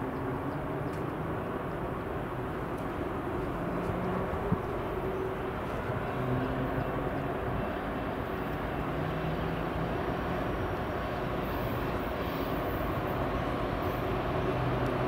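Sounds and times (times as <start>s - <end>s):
diesel locomotive engines droning: 0.0s - 15.0s.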